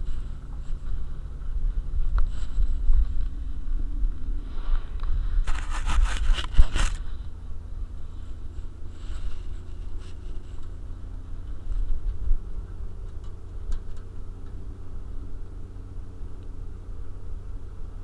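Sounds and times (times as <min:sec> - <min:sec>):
low vehicle rumble: 0:00.0 - 0:18.0
collar scraping against camera: 0:04.4 - 0:07.2.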